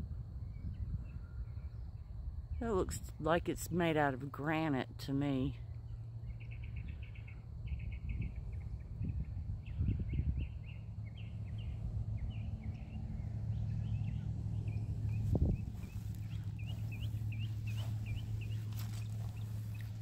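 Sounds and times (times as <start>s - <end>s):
steady low rumble: 0.0s - 20.0s
rapid chirping trills: 5.9s - 20.0s.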